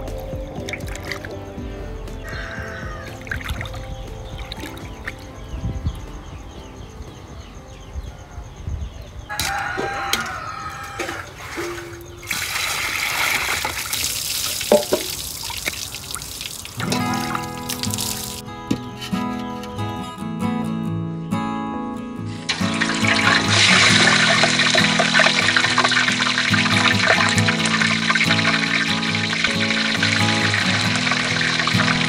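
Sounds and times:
background music: 0:00.0 - 0:10.9, 0:16.8 - 0:32.0
water sloshing in a basin: 0:02.9 - 0:05.3, 0:09.5 - 0:18.4, 0:22.5 - 0:32.0
water pouring into a colander: 0:10.9 - 0:18.4, 0:22.5 - 0:32.0
fish sizzling in hot oil: 0:22.5 - 0:31.8.

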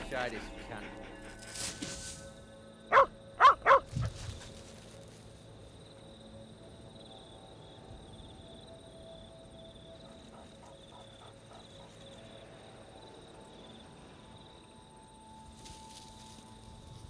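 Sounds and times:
dog barking: 0:02.9 - 0:03.9.

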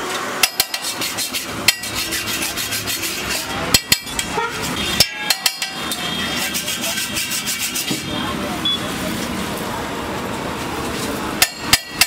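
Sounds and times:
metal spatula scraping on griddle: 0:00.4 - 0:08.3
sharp ringing knocks: 0:05.0 - 0:06.0.

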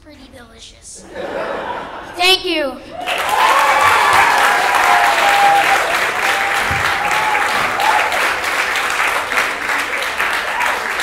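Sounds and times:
audience applauding: 0:02.9 - 0:11.0
person whooping: 0:03.1 - 0:08.2.

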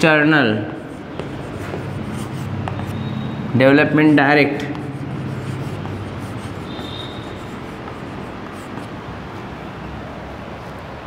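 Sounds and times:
writing strokes on a board: 0:00.0 - 0:09.6
high squeak: 0:06.6 - 0:07.5.

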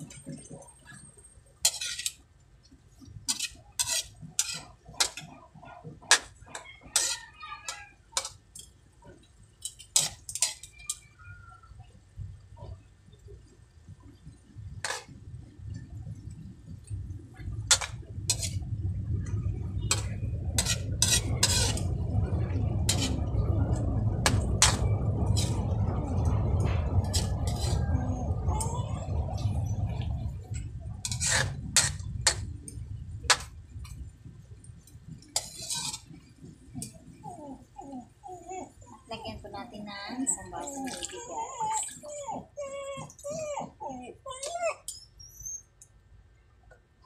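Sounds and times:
metal spatula scraping a wok: 0:01.6 - 0:02.2, 0:03.3 - 0:05.3, 0:06.1 - 0:08.4, 0:09.6 - 0:11.0, 0:14.8 - 0:15.1, 0:17.7 - 0:32.5, 0:35.3 - 0:37.0
low rumble: 0:12.0 - 0:39.9.

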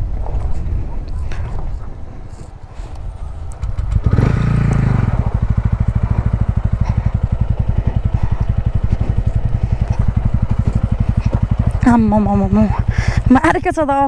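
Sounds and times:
motorcycle engine revving: 0:03.0 - 0:13.7.

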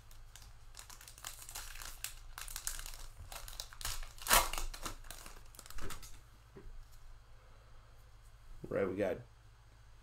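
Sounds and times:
foil wrapper ripping: 0:00.0 - 0:06.1
foil wrapper crinkling: 0:00.0 - 0:06.2.

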